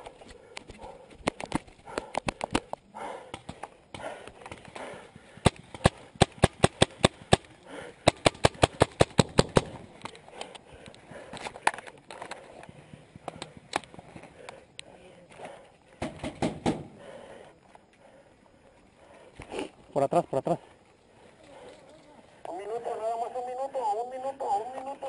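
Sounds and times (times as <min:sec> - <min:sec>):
paintball marker firing pops: 0:05.4 - 0:10.2.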